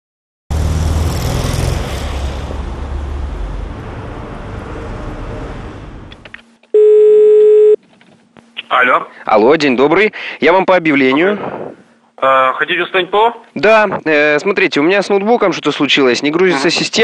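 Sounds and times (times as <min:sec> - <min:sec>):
car passing with low rumble: 0:00.5 - 0:06.3
telephone ringback tone: 0:06.7 - 0:07.8.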